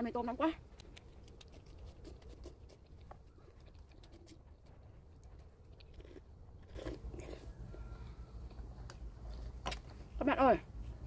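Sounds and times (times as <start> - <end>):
mouth clicks of someone eating: 0.6 - 7.4.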